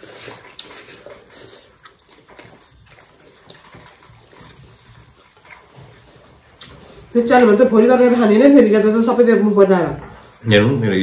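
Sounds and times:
wet chewing and lip smacks: 0.0 - 7.8
fingers squishing food: 0.0 - 8.6.

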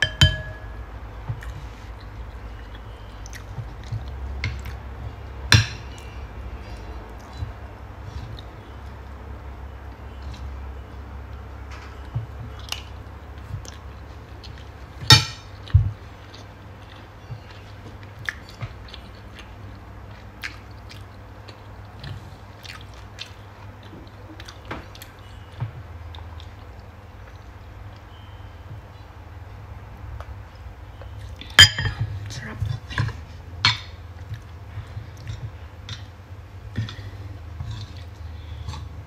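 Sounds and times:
person chewing: 1.3 - 5.2, 12.0 - 28.1, 34.2 - 39.0.

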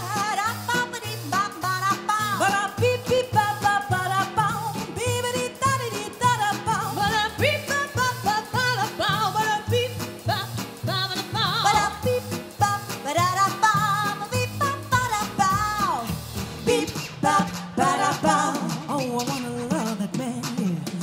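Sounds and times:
swing backing music: 0.0 - 21.0
female trio singing in harmony: 11.5 - 12.3, 13.7 - 20.8.

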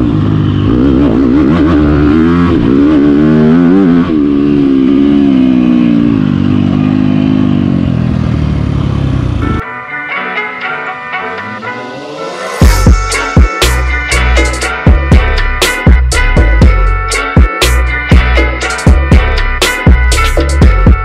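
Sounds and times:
motorcycle engine revving: 0.0 - 9.6
music: 9.4 - 21.0.

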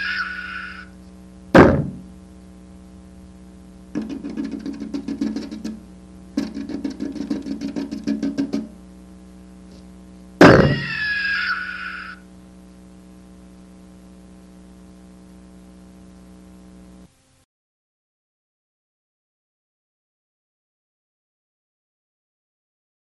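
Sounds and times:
short wavering whine: 0.0 - 17.1
steady electrical hum: 0.0 - 17.5
loud hit: 1.5 - 2.1, 10.4 - 11.1
rapid clicking: 4.0 - 5.8, 6.4 - 8.7.

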